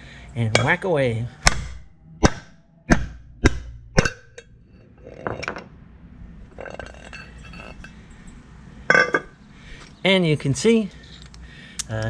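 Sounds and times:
hammer striking steel: 0:00.5 - 0:04.6
metallic clinks and rattles: 0:06.5 - 0:09.3.

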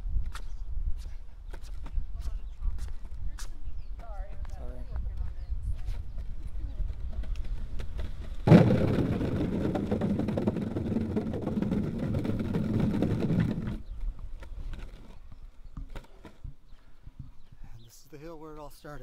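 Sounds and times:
wheels rolling on concrete: 0:01.6 - 0:17.5
wheels clattering over wooden planks: 0:06.8 - 0:17.4.

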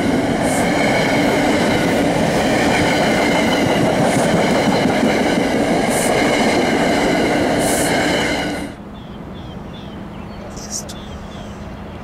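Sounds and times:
train wheels rushing on rails: 0:00.0 - 0:08.8.

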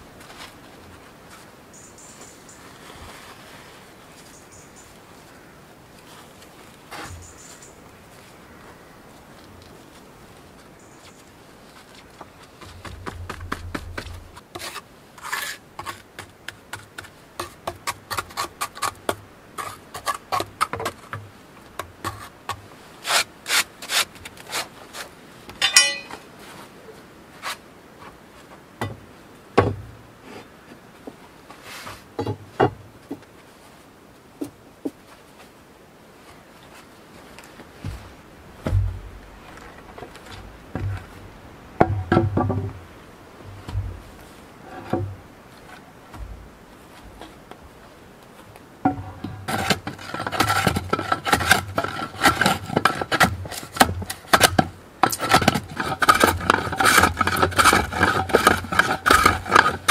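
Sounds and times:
trowel scraping wet cement: 0:14.0 - 0:16.0, 0:49.4 - 0:53.7, 0:55.0 - 0:59.9
dull knocks: 0:37.8 - 0:39.4, 0:40.7 - 0:41.2, 0:41.8 - 0:42.8, 0:43.5 - 0:44.2.

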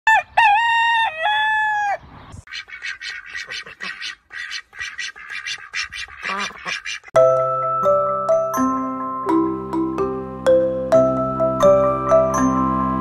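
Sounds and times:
rooster crowing: 0:00.1 - 0:02.0
rapid short fowl calls: 0:00.3 - 0:07.1.

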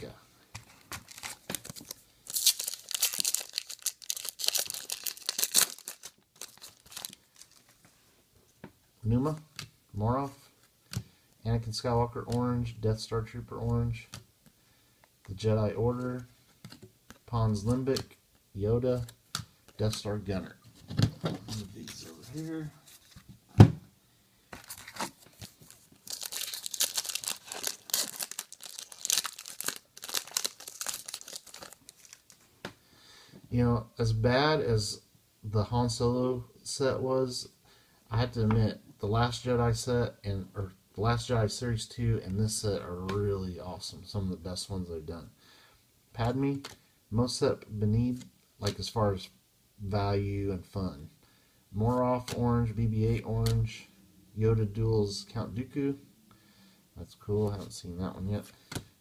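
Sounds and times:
foil wrapper tearing and crinkling: 0:00.9 - 0:07.6, 0:24.7 - 0:32.4.

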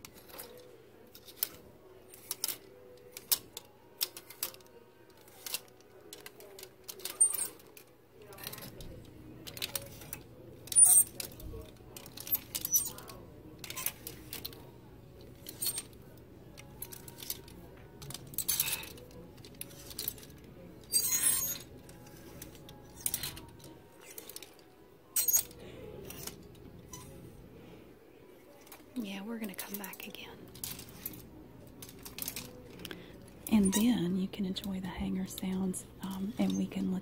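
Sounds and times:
plastic hangers clacking: 0:00.0 - 0:27.1, 0:28.5 - 0:37.0
hangers sliding on metal rail: 0:18.0 - 0:24.6.

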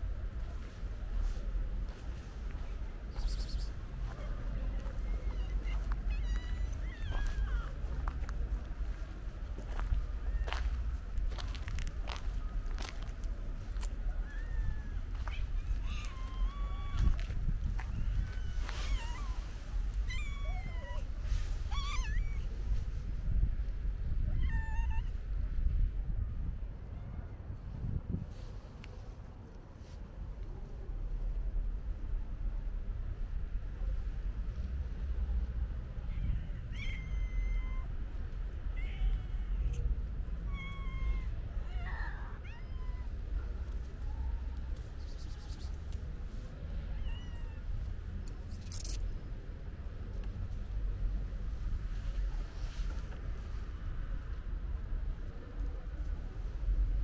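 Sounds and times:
steady low rumble: 0:00.0 - 0:57.0
cats meowing: 0:03.3 - 0:07.9, 0:14.1 - 0:22.5, 0:24.3 - 0:25.2, 0:36.0 - 0:37.9, 0:40.4 - 0:43.2, 0:46.9 - 0:47.8.

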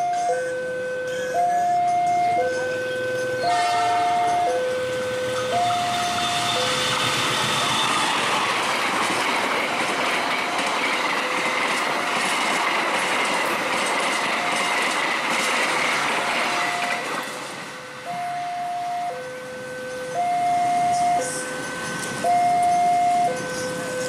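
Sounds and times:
level-crossing alarm: 0:00.0 - 0:24.0
train rushing past: 0:01.3 - 0:24.0
wheels clattering over rail joints: 0:04.2 - 0:17.8.

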